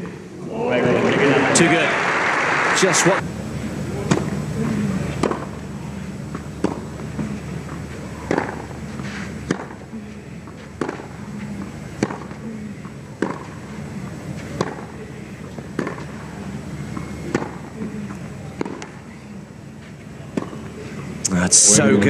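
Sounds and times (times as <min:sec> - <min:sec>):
tennis racquet hitting ball: 0:04.0 - 0:05.7, 0:06.3 - 0:19.4, 0:20.2 - 0:21.0.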